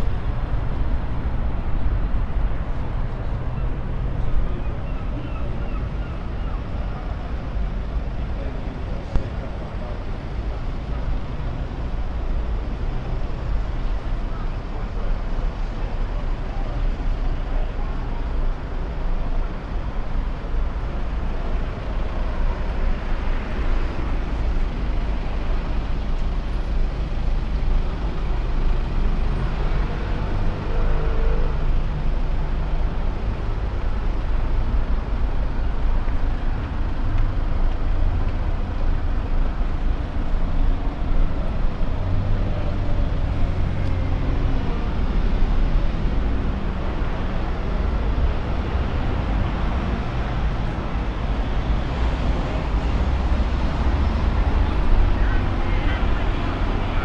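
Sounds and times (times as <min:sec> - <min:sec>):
cars and buses passing: 0:00.0 - 0:57.0.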